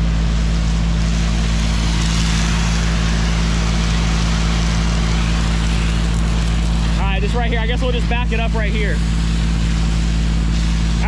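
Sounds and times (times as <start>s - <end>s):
fire truck engine running: 0.0s - 11.0s
hose water spraying on ground: 0.0s - 11.0s.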